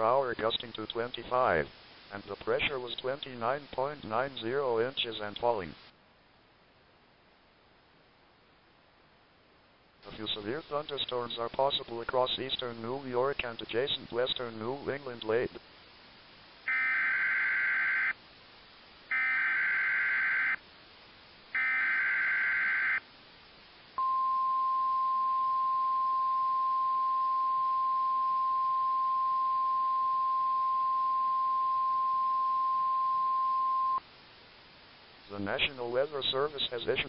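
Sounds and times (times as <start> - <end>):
steady alarm tone: 16.7 - 18.1, 19.1 - 20.6, 21.6 - 23.0.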